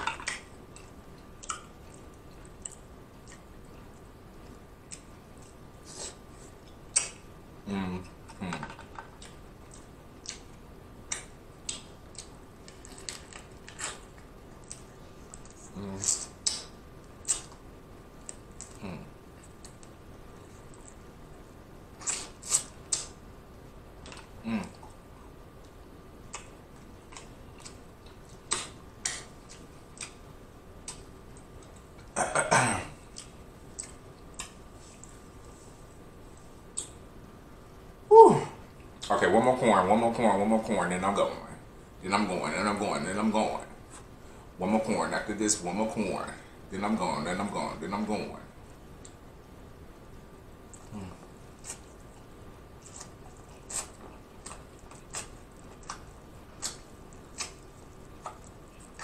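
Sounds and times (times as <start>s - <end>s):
wet lip smacks and clicks: 6.9s - 7.2s, 16.1s - 17.6s, 22.0s - 23.2s, 28.5s - 30.2s
eating sounds: 25.6s - 30.2s, 50.7s - 59.0s.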